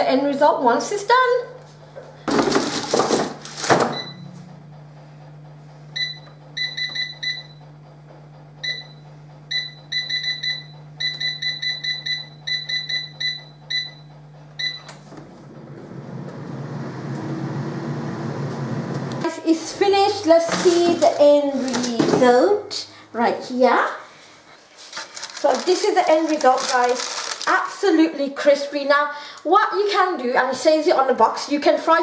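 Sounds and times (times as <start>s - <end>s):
air fryer fan running: 0.0s - 32.0s
basket clattering into air fryer: 2.3s - 4.3s.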